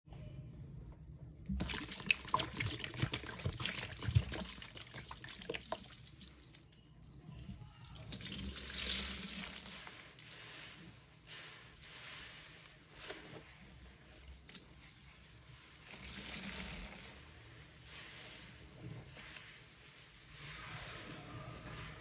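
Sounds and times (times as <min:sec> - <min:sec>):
liquid splashing and dripping: 0:01.5 - 0:06.8
rush of poured liquid: 0:01.5 - 0:06.8, 0:07.8 - 0:22.0.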